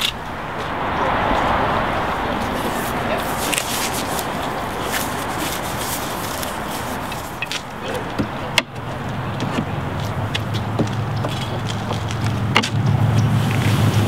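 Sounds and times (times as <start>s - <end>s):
low vehicle engine hum: 0.0s - 14.0s
outdoor background noise: 0.0s - 14.0s
knocks of wooden poles: 7.1s - 13.3s.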